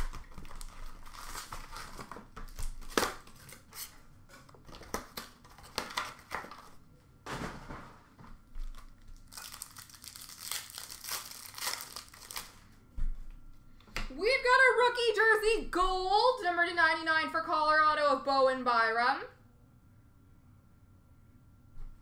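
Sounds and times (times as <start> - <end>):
wrappers tearing and crinkling: 0.0 - 4.0, 4.7 - 6.8, 8.6 - 12.7.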